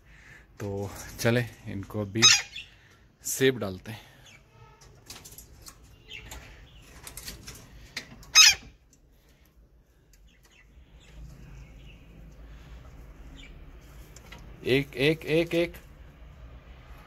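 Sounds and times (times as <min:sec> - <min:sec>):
parakeet squawk: 0:02.2 - 0:02.8, 0:08.3 - 0:08.8.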